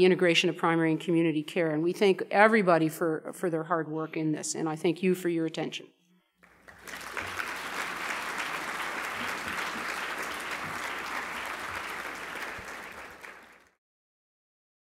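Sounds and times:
audience applauding: 6.4s - 13.8s.

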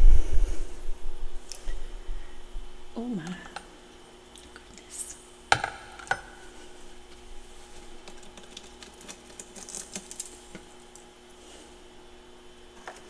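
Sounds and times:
faint steady hum: 0.0s - 13.0s
frost crunching while chewed: 7.8s - 11.0s.

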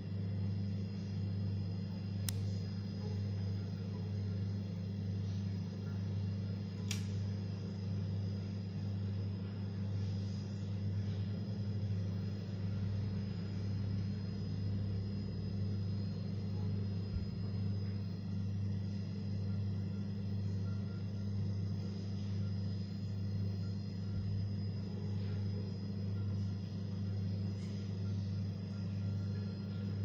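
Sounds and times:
steady low hum: 0.0s - 30.0s
sharp click: 2.2s - 2.6s, 6.8s - 7.1s.

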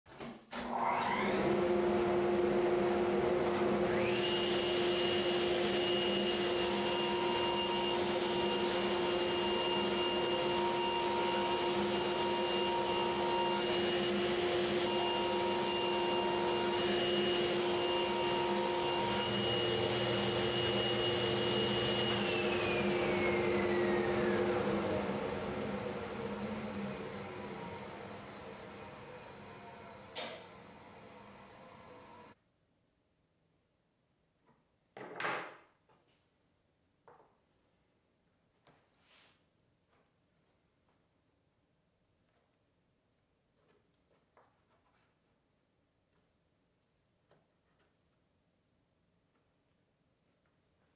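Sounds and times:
table saw motor whine: 0.7s - 32.4s
dust vacuum hum: 1.2s - 32.4s.

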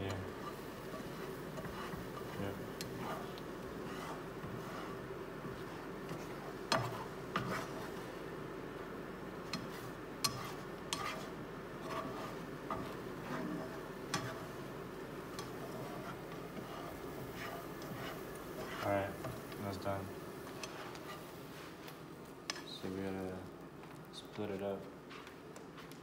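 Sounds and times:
spatula scraping a frying pan: 0.0s - 8.2s, 9.4s - 19.6s, 20.4s - 21.8s
low sizzle: 0.0s - 26.0s.

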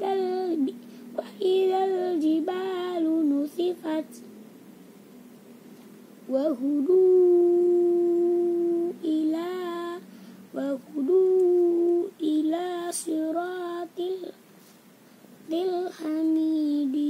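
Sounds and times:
child chanting: 15.5s - 17.0s.

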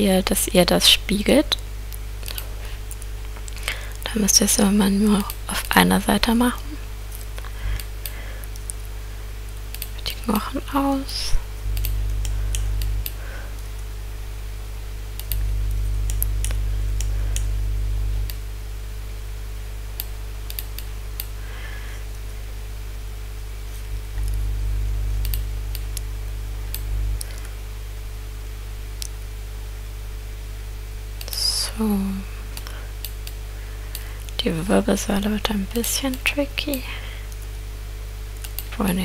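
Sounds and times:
low electrical hum: 0.0s - 39.0s
computer mouse clicks: 9.7s - 10.0s, 15.2s - 15.4s, 20.0s - 21.3s, 25.2s - 25.8s, 38.4s - 38.7s.

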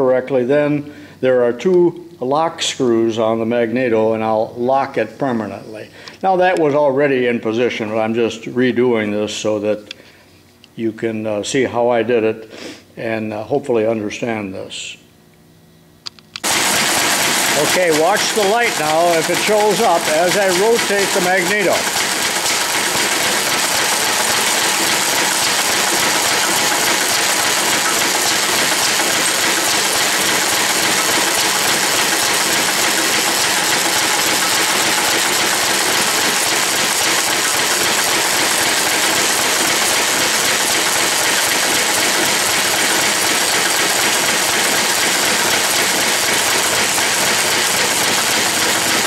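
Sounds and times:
single-cylinder engine running: 16.4s - 49.0s.

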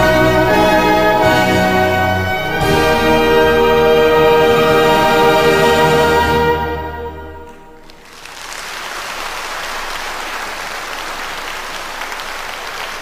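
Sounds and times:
trombone and orchestra chord: 0.0s - 7.8s
audience applause: 7.8s - 13.0s.

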